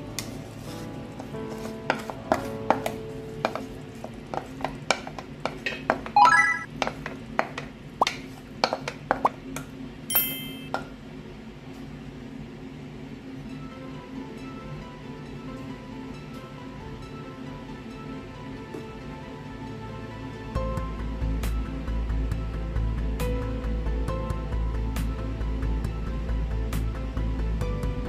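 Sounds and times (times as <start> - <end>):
ringing clinks: 10.1 - 10.7
background music: 13.5 - 28.0.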